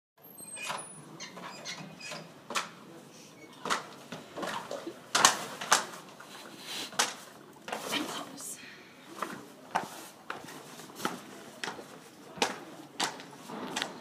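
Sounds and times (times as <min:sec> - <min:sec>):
swim fins slapping on hard floor: 0:03.6 - 0:06.2, 0:06.9 - 0:07.9, 0:09.2 - 0:14.0.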